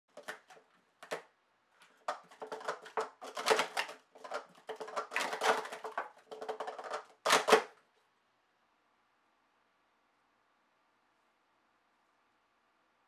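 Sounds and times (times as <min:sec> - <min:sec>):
plastic cups clicking and clattering: 0:00.1 - 0:01.2, 0:02.0 - 0:07.7.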